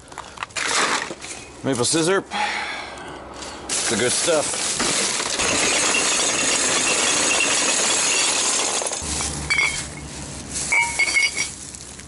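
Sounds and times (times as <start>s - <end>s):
plastic garbage bag rustling: 3.7s - 5.3s, 8.9s - 12.0s
glass bottles clinking: 4.8s - 10.0s, 10.7s - 11.6s.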